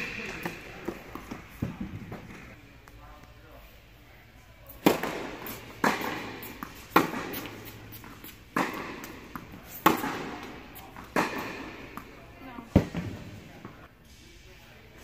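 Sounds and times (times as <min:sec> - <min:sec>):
tennis ball hit by rackets: 0:04.8 - 0:12.1.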